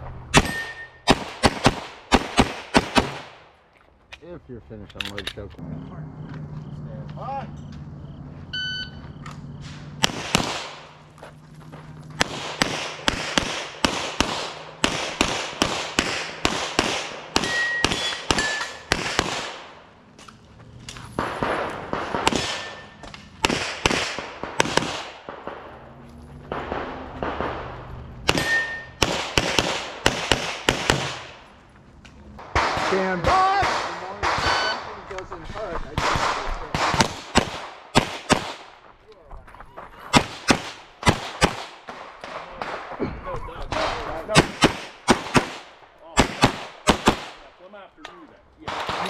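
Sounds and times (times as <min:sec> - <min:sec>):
pistol shots: 0:00.3 - 0:03.4, 0:09.6 - 0:11.1, 0:12.1 - 0:20.0, 0:21.1 - 0:25.8, 0:26.5 - 0:31.5, 0:32.4 - 0:35.2, 0:35.8 - 0:38.9, 0:40.1 - 0:43.0, 0:43.7 - 0:47.5, 0:48.6 - 0:49.0
shot timer beep: 0:08.5 - 0:09.6.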